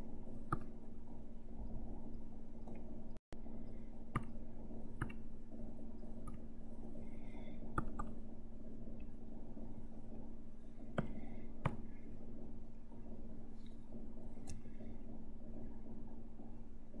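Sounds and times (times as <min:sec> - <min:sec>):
steady low hum: 0:00.0 - 0:17.0
computer mouse clicking: 0:00.5 - 0:00.8, 0:04.1 - 0:04.4, 0:05.0 - 0:05.2, 0:06.1 - 0:06.5, 0:07.7 - 0:08.2, 0:10.9 - 0:11.9, 0:14.4 - 0:14.7.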